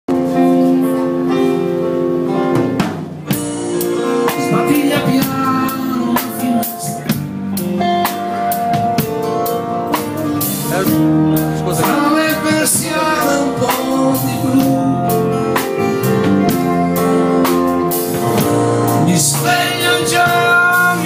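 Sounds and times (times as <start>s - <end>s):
live band playing: 0.1s - 21.0s
person singing: 3.8s - 8.6s, 10.6s - 15.7s, 18.9s - 21.0s.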